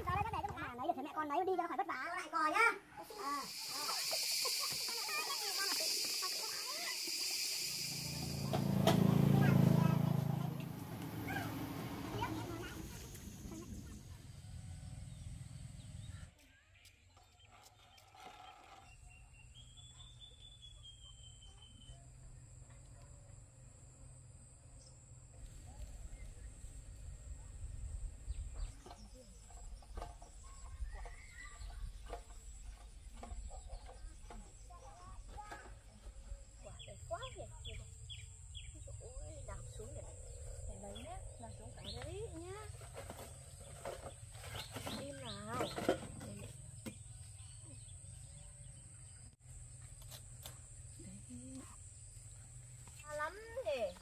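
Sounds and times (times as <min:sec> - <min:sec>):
high insect trill: 0:03.1 - 0:10.4.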